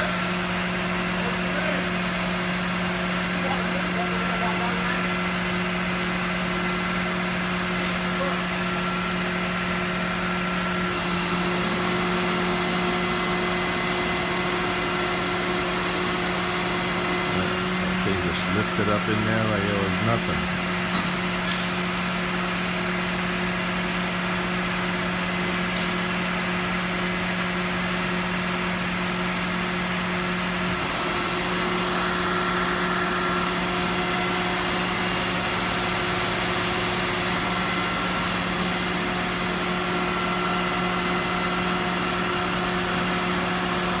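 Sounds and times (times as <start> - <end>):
machinery humming and whooshing: 10.5 - 21.6.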